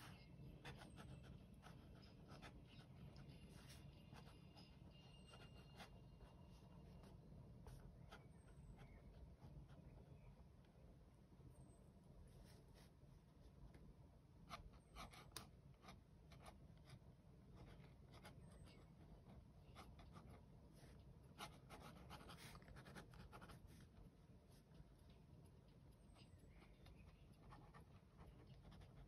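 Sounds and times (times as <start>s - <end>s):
pen scratching on paper: 0.0s - 10.0s, 14.5s - 24.7s, 26.1s - 29.0s.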